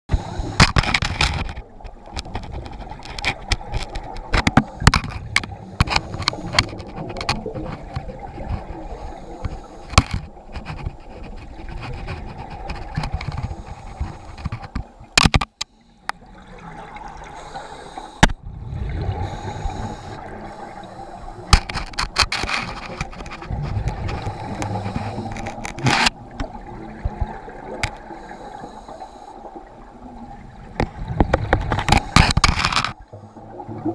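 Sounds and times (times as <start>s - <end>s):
knocks and scrapes on camera: 0.6s - 8.8s, 9.4s - 15.7s, 21.5s - 26.2s, 30.8s - 33.0s
muffled underwater rumble: 15.8s - 33.9s.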